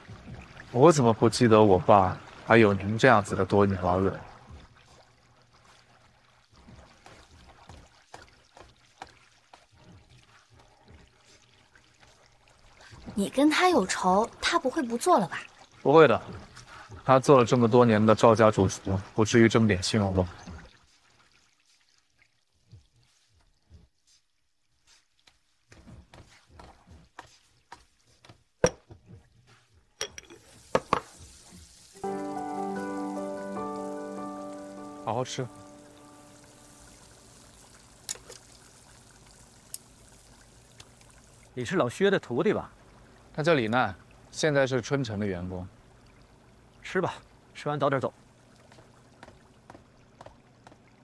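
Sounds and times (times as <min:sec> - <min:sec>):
water trickling and bubbling: 0:00.0 - 0:28.0, 0:28.7 - 0:51.0
pot lid clinking: 0:30.0 - 0:31.1
music: 0:32.0 - 0:37.0.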